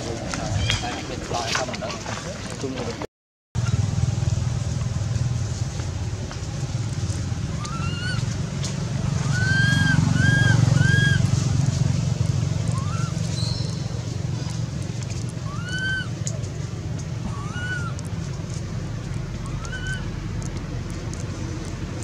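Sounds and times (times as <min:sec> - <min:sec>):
low motor-like drone: 0:03.6 - 0:22.0
high squeaky calls: 0:07.5 - 0:08.3, 0:09.2 - 0:11.4, 0:12.6 - 0:14.6, 0:15.3 - 0:16.4, 0:17.2 - 0:18.2, 0:19.3 - 0:20.2.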